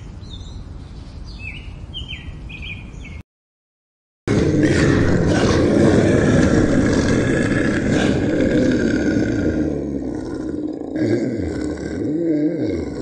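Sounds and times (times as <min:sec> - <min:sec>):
tiger roaring: 0:04.3 - 0:13.0.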